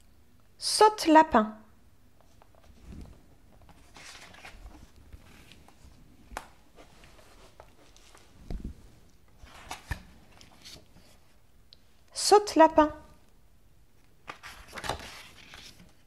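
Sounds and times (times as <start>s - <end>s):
book pages rustling: 2.2s - 11.4s, 14.0s - 16.0s.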